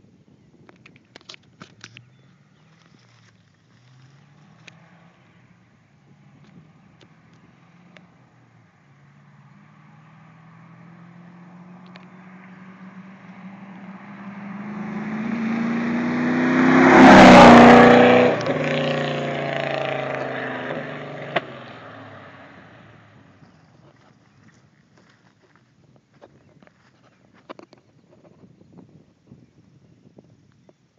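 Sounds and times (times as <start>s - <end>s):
car engine driving by: 2.0s - 24.8s.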